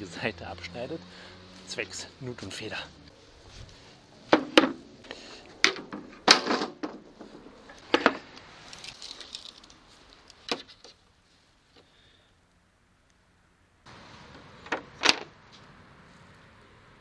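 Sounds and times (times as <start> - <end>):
tape measure handled: 8.6 - 11.0.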